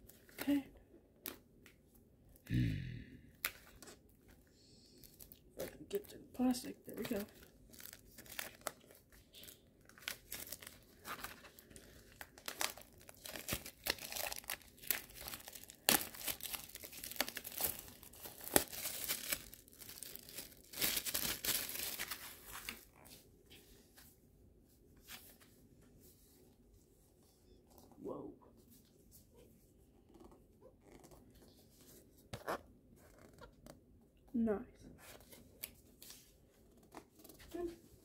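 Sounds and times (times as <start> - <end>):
plastic wrap crinkling: 5.0 - 23.1.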